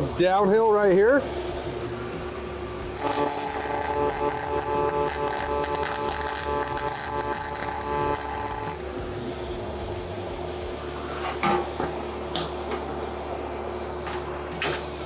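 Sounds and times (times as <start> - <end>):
welding arc buzzing and crackling: 2.9 - 9.0.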